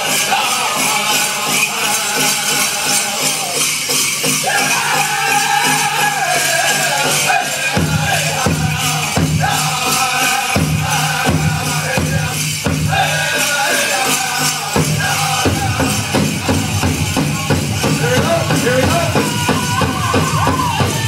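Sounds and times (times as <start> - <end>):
group singing in high voices: 0.0 - 21.0
big drum strokes: 7.7 - 21.0.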